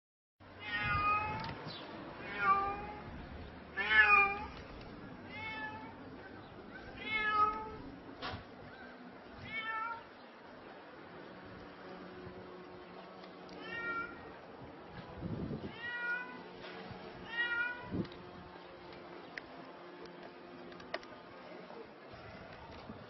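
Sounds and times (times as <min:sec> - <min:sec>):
cat meowing in distress: 0:00.6 - 0:01.5, 0:02.2 - 0:03.1, 0:03.8 - 0:04.6, 0:06.9 - 0:07.8, 0:13.6 - 0:14.3, 0:15.6 - 0:16.5, 0:17.2 - 0:18.0.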